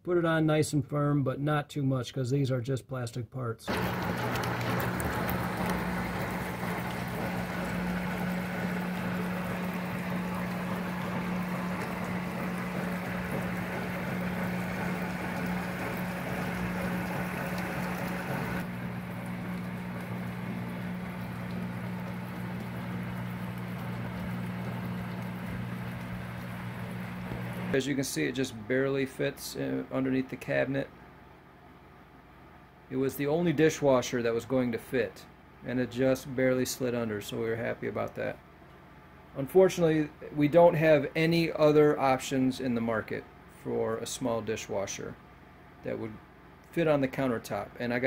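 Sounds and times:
dishwasher low hum: 3.7s - 30.4s.

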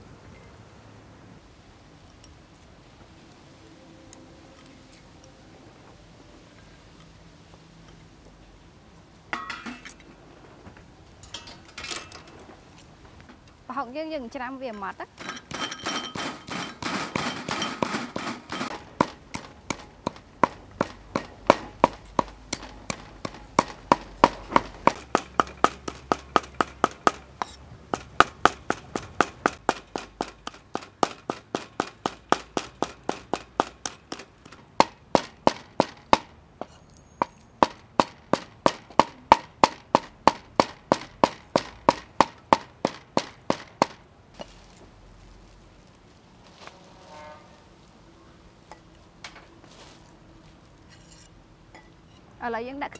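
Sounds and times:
cleaver chopping on wooden block: 15.5s - 44.0s.

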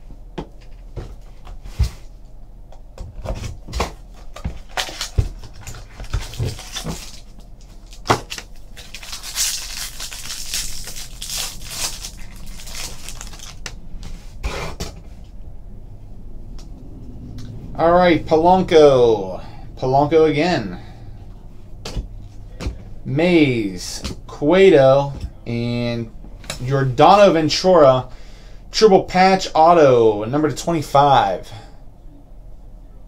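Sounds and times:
foil wrapper crinkling: 4.3s - 13.8s.

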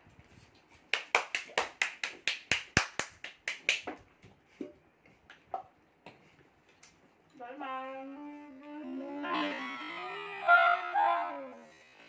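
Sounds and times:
hand claps: 0.9s - 4.0s.

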